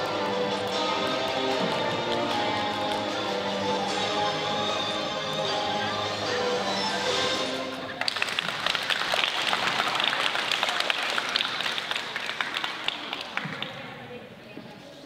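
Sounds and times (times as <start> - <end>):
music: 0.0 - 9.2
audience applauding: 7.8 - 13.8.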